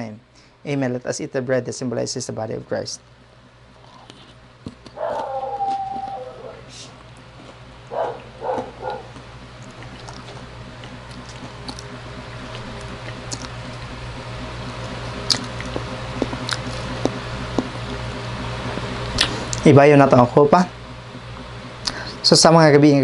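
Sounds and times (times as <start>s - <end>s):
steady low hum: 0.0s - 23.0s
dog whining: 4.9s - 6.7s, 7.9s - 9.2s.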